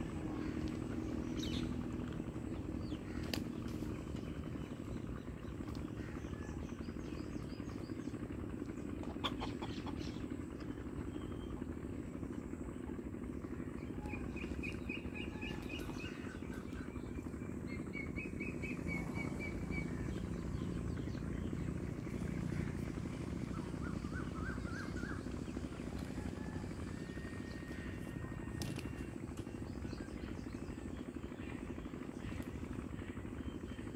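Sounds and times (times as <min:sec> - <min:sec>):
low motor hum: 0:00.0 - 0:33.9
small birds chirping: 0:00.0 - 0:33.9.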